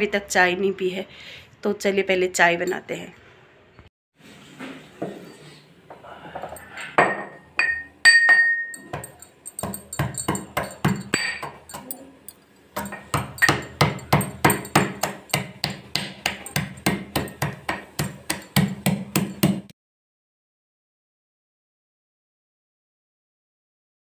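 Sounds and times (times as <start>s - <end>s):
pestle pounding in metal mortar: 7.7s - 12.0s, 12.8s - 19.7s.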